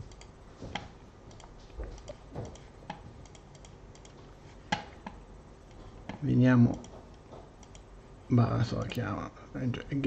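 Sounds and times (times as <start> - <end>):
computer keyboard typing: 0.0 - 7.9
mouse clicks: 0.1 - 7.9.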